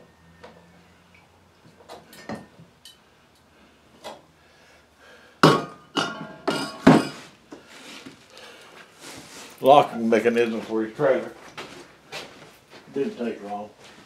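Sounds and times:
sharp metallic clanks with ring: 5.5s - 7.2s.

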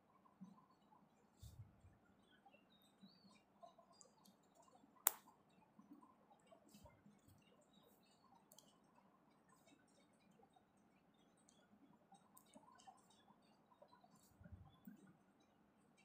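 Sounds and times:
light clicks and ticks: 3.2s - 16.0s.

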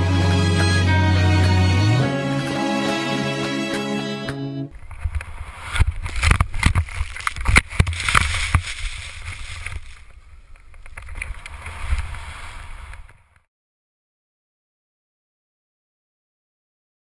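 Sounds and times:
rushing snow: 4.8s - 10.3s, 11.0s - 13.2s.

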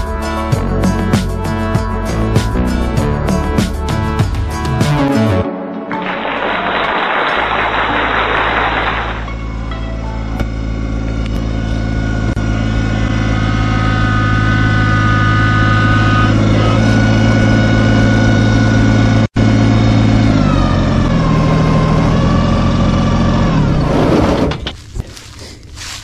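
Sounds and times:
vehicle engine running: 0.0s - 5.4s, 6.2s - 26.0s
high whine: 0.0s - 19.8s.

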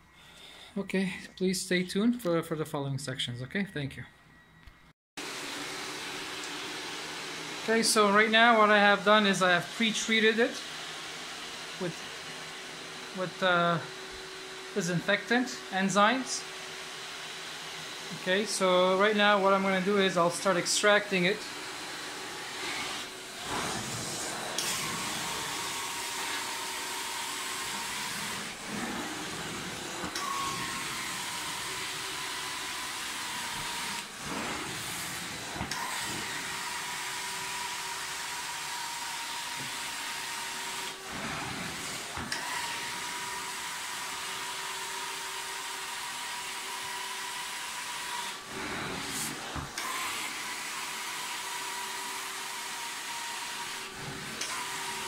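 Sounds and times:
carpet extraction wand suction hiss: 21.8s - 55.0s.

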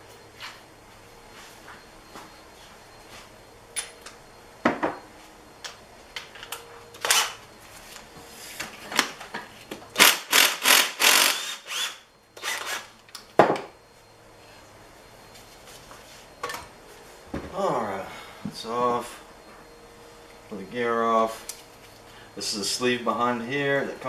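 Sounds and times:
impact wrench hammering: 10.0s - 12.8s.

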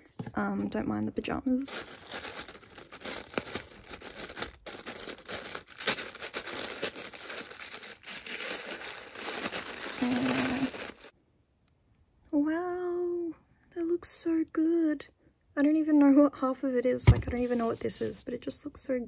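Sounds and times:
tissue paper crinkling: 1.7s - 11.1s.

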